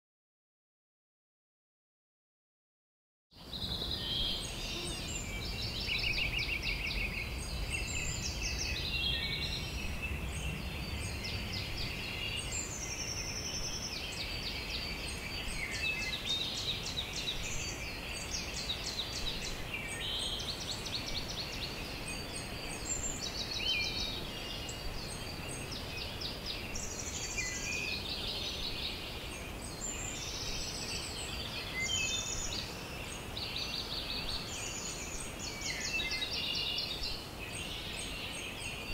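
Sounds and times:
wild birds singing and calling: 3.4 - 38.9.

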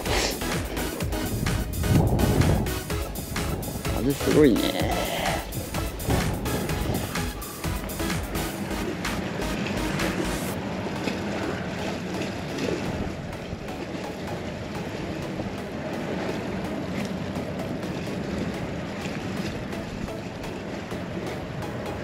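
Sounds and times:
sea washing around pier: 0.0 - 22.0
wind blowing across microphone: 1.0 - 4.3, 5.2 - 7.4.

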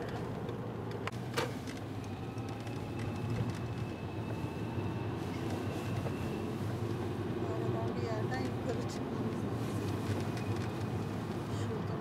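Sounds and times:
car engine and road rumble: 0.0 - 12.0.

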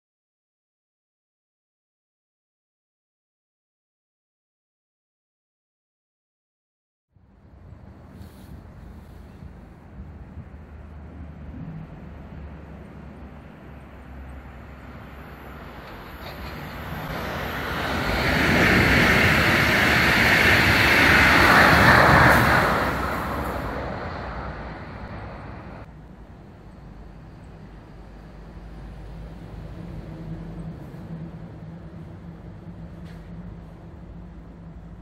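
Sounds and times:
train wheels rolling on rails: 12.9 - 25.9, 26.8 - 35.0.

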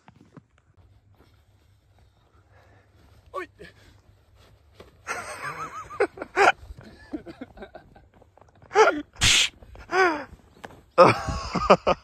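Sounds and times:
young men laughing: 5.0 - 9.1, 11.0 - 12.0.

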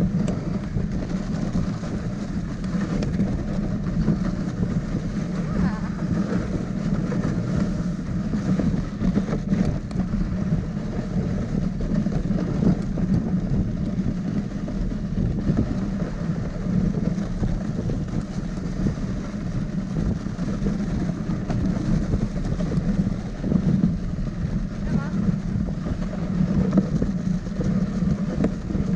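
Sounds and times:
sled running over packed snow: 0.0 - 28.9.

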